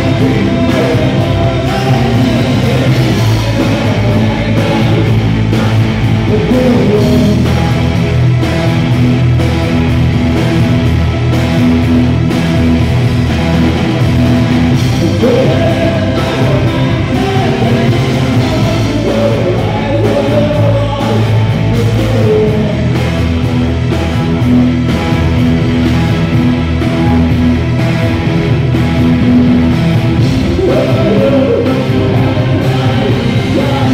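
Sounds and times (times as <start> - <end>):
man singing: 0.0 - 8.2, 14.9 - 23.4, 30.3 - 33.9
rock band playing: 0.0 - 33.9.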